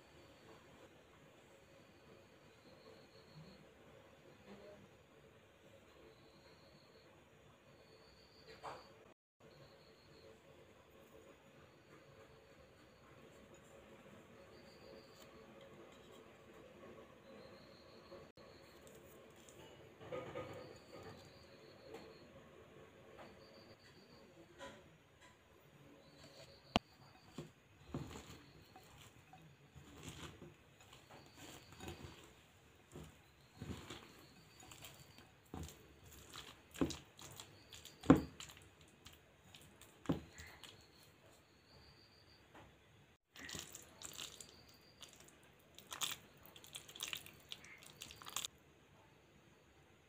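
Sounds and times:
hands mixing cabbage in a bowl: 0:18.4 - 0:21.6, 0:26.2 - 0:41.4, 0:43.3 - 0:48.5.

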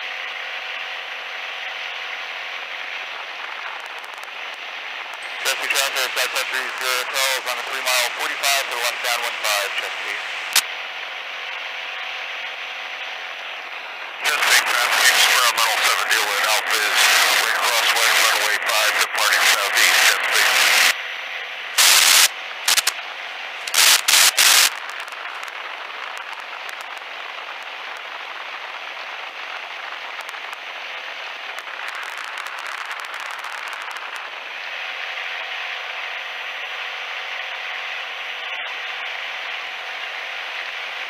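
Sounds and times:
loud crackling bursts: 0:02.6 - 0:10.8, 0:13.5 - 0:21.0, 0:21.7 - 0:36.6.

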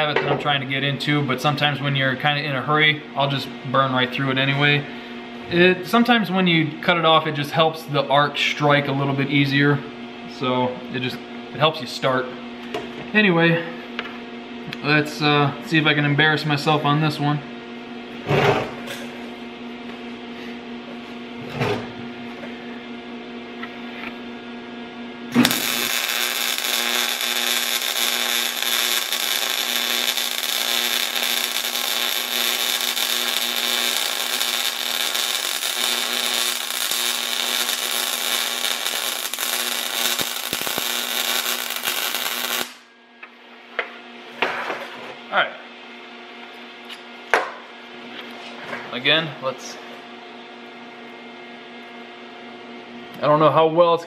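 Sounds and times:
steady hum: 0:00.0 - 0:54.0
welding arc crackling and buzzing: 0:25.3 - 0:42.9.

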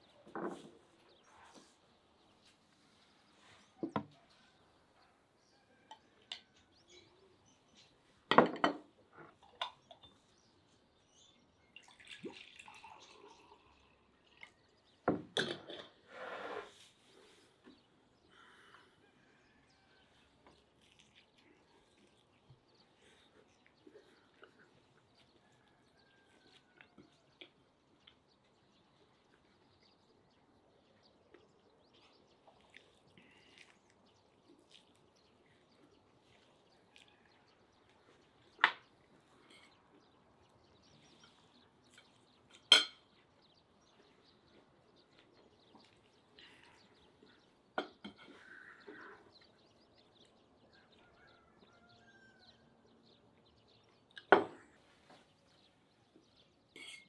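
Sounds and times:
quiet eating sounds: 0:00.0 - 0:57.0
fork clinking on a plate: 0:56.8 - 0:57.0.

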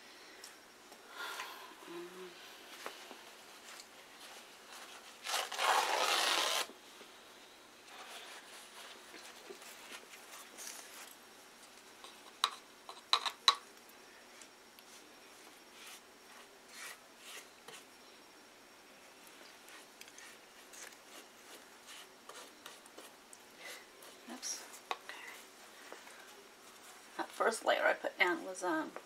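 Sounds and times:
brushing and rubbing on cardboard: 0:15.7 - 0:17.9, 0:19.7 - 0:23.2.

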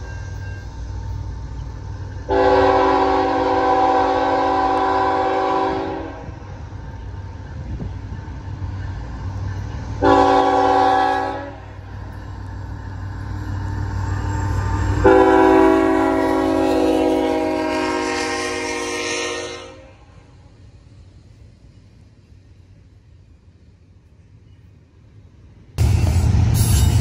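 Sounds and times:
train rumbling: 0:00.0 - 0:27.0
locomotive air horn blasts: 0:02.3 - 0:06.4, 0:10.0 - 0:11.8, 0:15.0 - 0:20.1.

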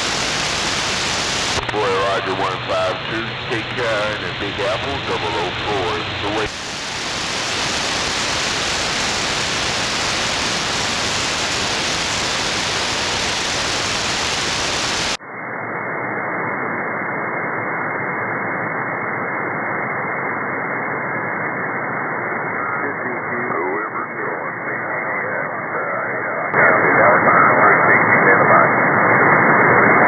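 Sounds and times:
radio static hiss: 0:00.0 - 0:15.2, 0:21.6 - 0:30.0.

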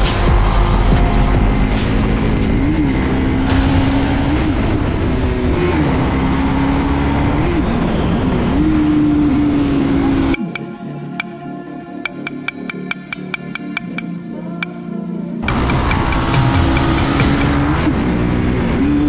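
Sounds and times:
music: 0:00.0 - 0:05.9, 0:07.3 - 0:19.0
motorcycle engine revving: 0:00.0 - 0:10.5, 0:15.4 - 0:19.0.

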